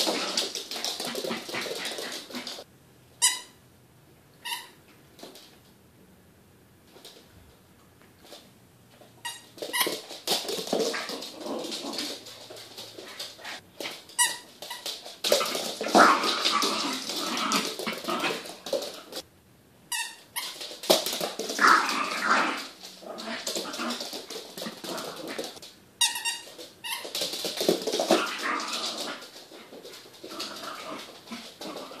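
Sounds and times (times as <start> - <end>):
puppy growling: 10.8 - 13.6, 15.3 - 19.2, 21.6 - 25.6, 28.0 - 32.0.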